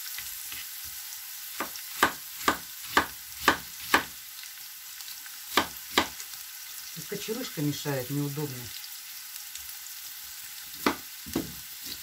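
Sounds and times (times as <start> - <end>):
vegetables sizzling in frying: 0.0 - 12.0
knife chopping on cutting board: 1.6 - 4.1, 5.5 - 6.2, 10.8 - 12.0.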